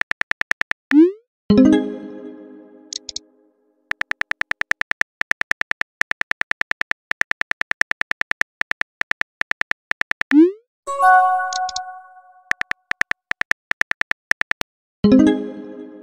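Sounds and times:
phone keyboard typing clicks: 2.9 - 3.2, 3.9 - 10.4, 11.4 - 14.7
message sent swoosh: 10.9 - 12.4.

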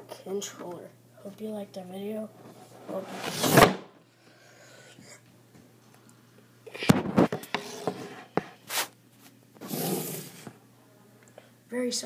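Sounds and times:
loud scrape: 2.9 - 3.8, 9.6 - 10.5.

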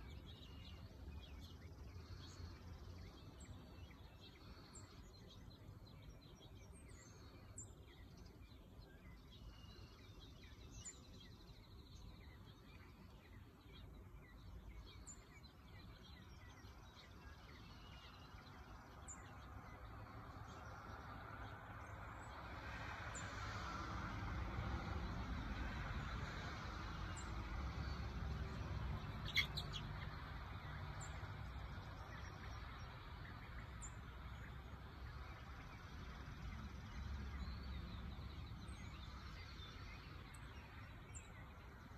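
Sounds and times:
high bird chirps: 29.2 - 29.9.

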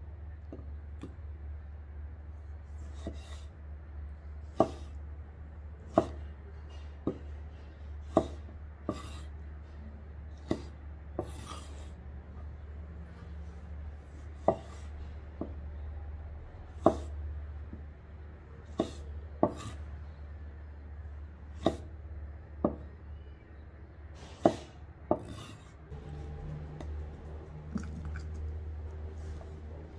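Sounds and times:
knife chopping on cutting board: 2.9 - 3.4, 4.6 - 5.0, 5.9 - 7.3, 8.0 - 9.3, 10.4 - 11.9, 14.4 - 15.6, 16.8 - 17.2, 18.8 - 19.8, 21.6 - 21.9, 24.4 - 25.7
low hum: 25.9 - 29.9.

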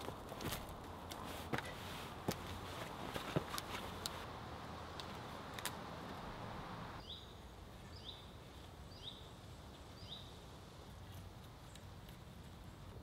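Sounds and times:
faint woodland background: 0.0 - 13.0
songbird calling: 6.9 - 10.4.

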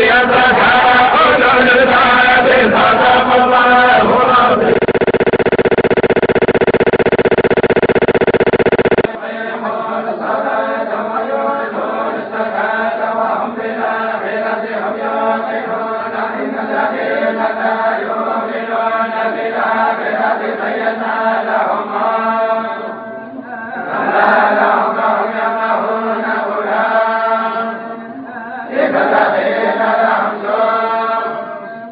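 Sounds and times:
loud steady buzz: 4.0 - 9.1.

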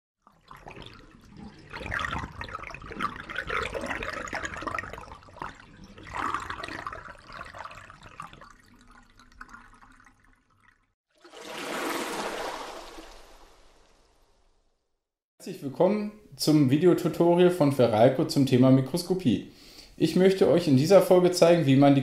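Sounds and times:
rushing splashing water: 11.2 - 14.4.

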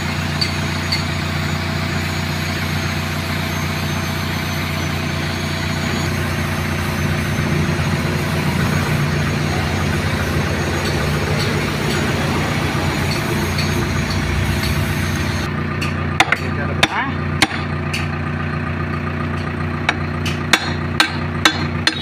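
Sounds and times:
diesel engine idling: 0.0 - 22.0.

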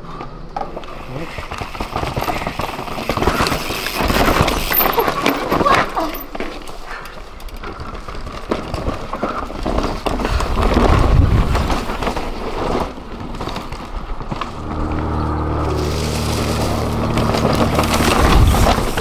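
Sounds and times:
bike clattering and rattling: 0.1 - 19.0
bike tyres crunching on rocks: 0.7 - 19.0
steady low hum: 14.4 - 19.0.

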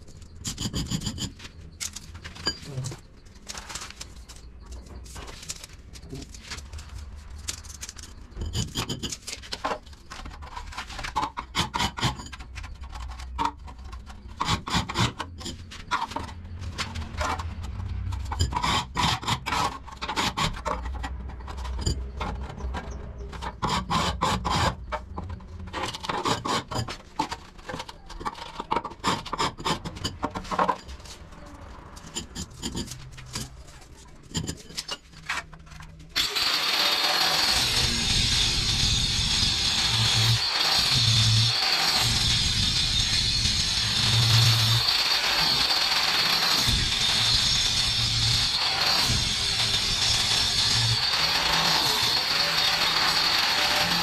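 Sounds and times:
hand scraping a hard surface: 0.2 - 36.0.

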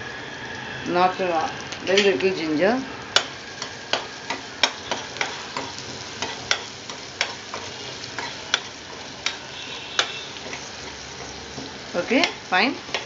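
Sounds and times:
onion sizzling in oil: 0.0 - 13.0
spoon scraping pan: 3.2 - 13.0.

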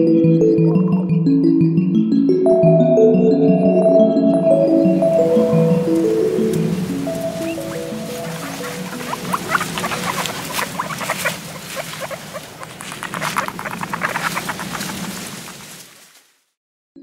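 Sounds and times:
soft background music: 0.0 - 11.3
small animal squeaks and chirps: 7.4 - 15.0.

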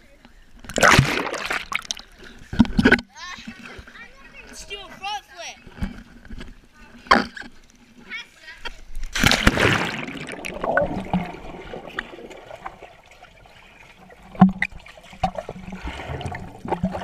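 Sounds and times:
water splash: 0.7 - 3.0, 9.0 - 17.0
underwater bubbling: 9.2 - 17.0.

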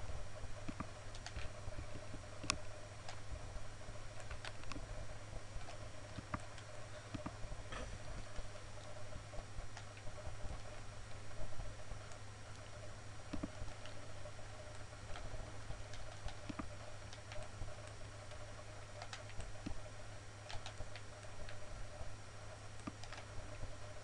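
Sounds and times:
steady low hum: 0.0 - 24.0
computer mouse clicks: 0.6 - 3.2, 4.2 - 4.8, 5.6 - 7.4, 9.8 - 11.2, 13.3 - 14.0, 14.6 - 21.7, 22.8 - 23.6.

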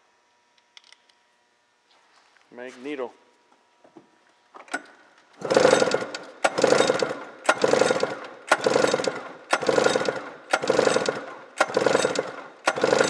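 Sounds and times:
engine cranked by pull starter: 4.7 - 13.0.

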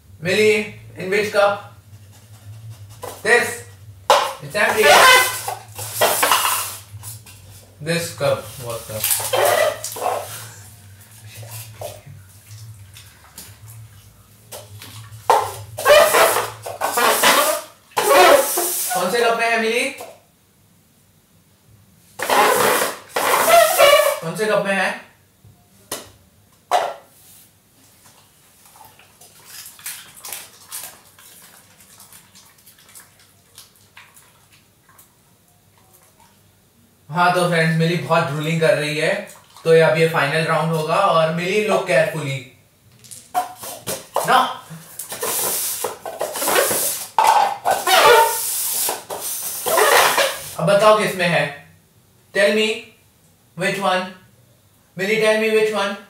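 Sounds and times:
steady low hum: 0.0 - 17.0
cups scraping across tile floor: 1.9 - 19.2, 22.2 - 24.2, 43.3 - 50.6
dog licking and lip-smacking: 28.0 - 36.4.

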